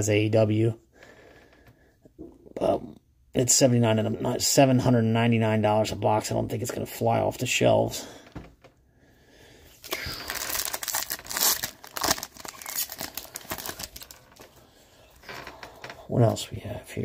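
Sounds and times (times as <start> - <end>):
wrapper tearing and crinkling: 9.8 - 14.6.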